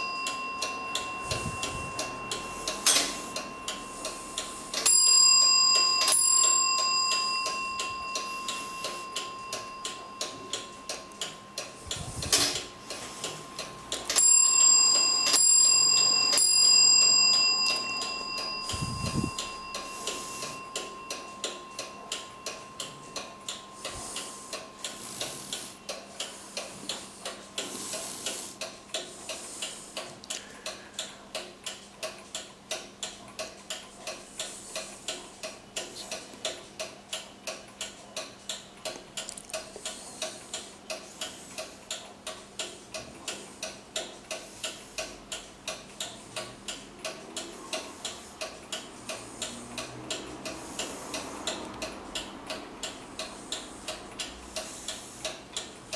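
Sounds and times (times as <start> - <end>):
clock ticking quickly: 0.0 - 55.9.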